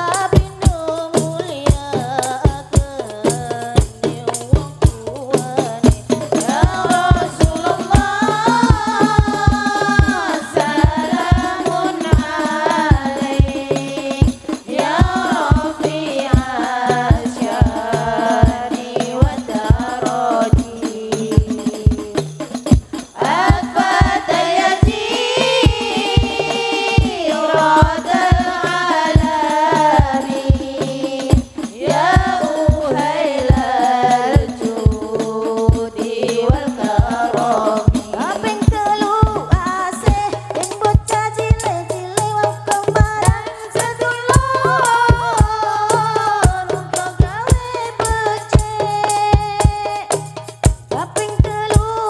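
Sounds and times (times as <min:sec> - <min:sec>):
frame drums beating: 0:00.0 - 0:52.0
women singing together: 0:00.0 - 0:52.0.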